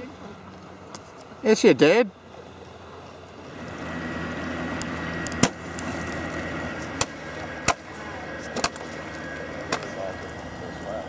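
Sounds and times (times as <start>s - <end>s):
model boats humming: 0.0s - 11.0s
sharp cracks: 5.3s - 5.9s, 7.0s - 7.9s.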